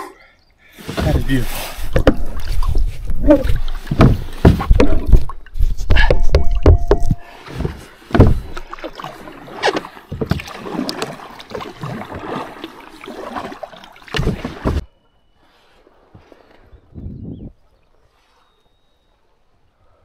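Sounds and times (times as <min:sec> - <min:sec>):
kayak paddle strokes in water: 0:00.8 - 0:16.8.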